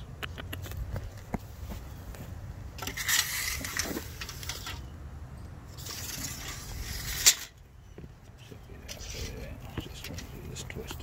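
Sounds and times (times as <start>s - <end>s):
rubbing and scraping handling noise: 1.4s - 4.9s, 5.7s - 7.6s, 8.3s - 11.0s.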